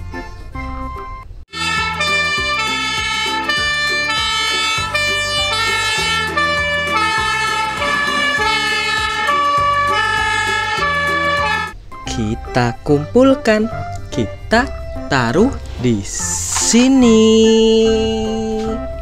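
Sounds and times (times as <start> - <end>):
fire engine two-tone siren: 1.5 - 11.8.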